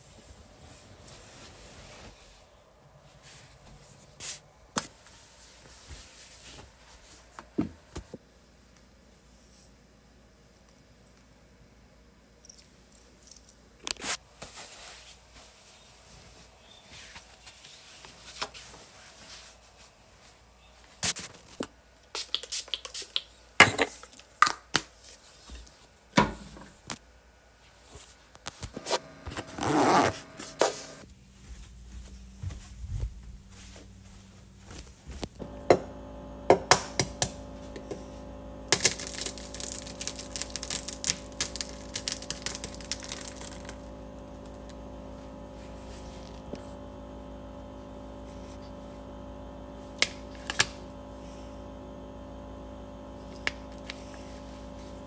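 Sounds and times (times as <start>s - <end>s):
bedding rustling: 0.0s - 7.9s, 28.8s - 35.4s
steady hum: 28.7s - 55.0s.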